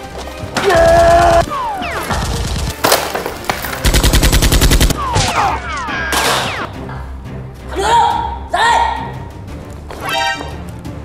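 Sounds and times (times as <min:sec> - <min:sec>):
machine-gun burst: 0:03.8 - 0:05.0.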